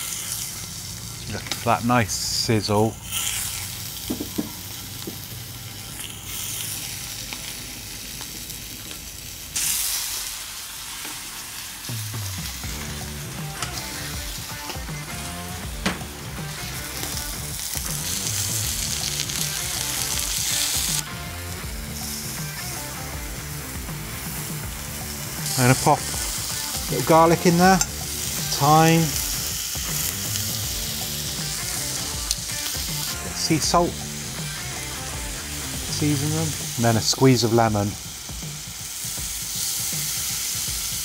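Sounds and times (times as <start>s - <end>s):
scallops sizzling in a pan: 0.0s - 1.8s, 2.9s - 41.0s
soft music: 11.8s - 41.0s.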